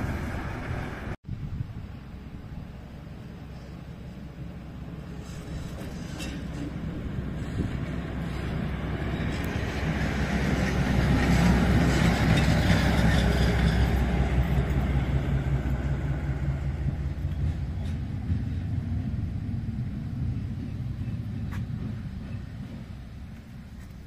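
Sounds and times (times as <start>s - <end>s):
diesel locomotive passing slowly: 0.0s - 24.0s.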